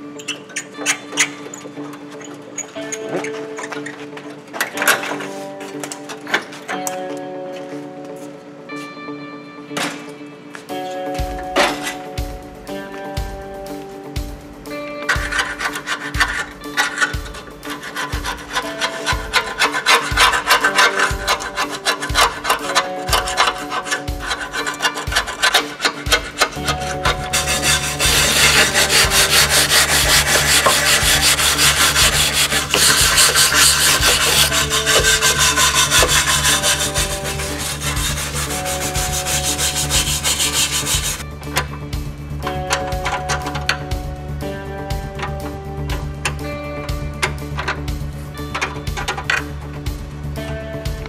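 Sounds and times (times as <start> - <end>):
background music with steady beat: 0.0 - 51.0
wire brush scrubbing rusty steel: 15.1 - 41.2.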